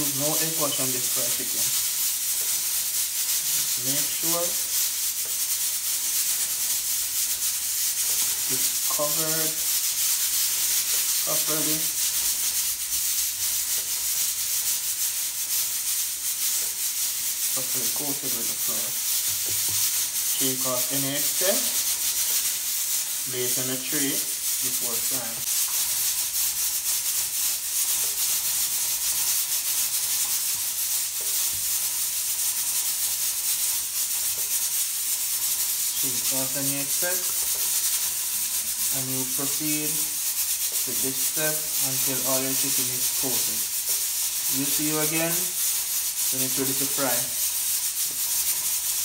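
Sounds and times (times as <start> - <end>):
chicken rubbed in flour rustling: 0.0 - 49.0.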